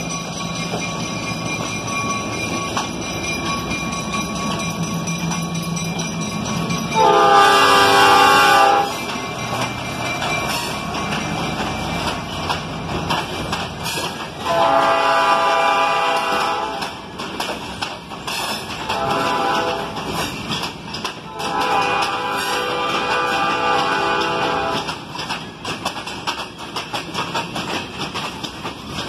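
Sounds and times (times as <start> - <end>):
freight cars rumbling: 0.0 - 29.0
wheels clicking over rail joints: 0.0 - 29.0
locomotive air horn blasts: 7.0 - 9.0, 14.4 - 16.8, 18.9 - 20.0, 21.3 - 24.9.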